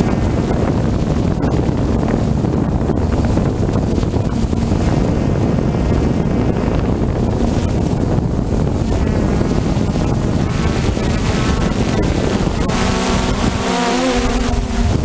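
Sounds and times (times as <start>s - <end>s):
drone propellers whining: 0.0s - 15.0s
wind buffeting microphone: 0.0s - 15.0s.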